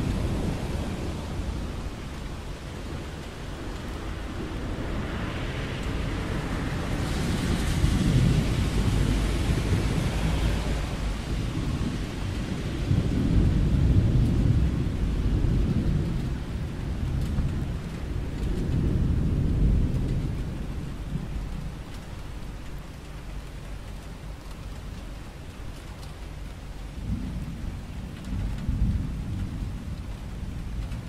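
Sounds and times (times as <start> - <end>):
steady rain: 0.0 - 31.0
thunder rolling: 6.6 - 21.6.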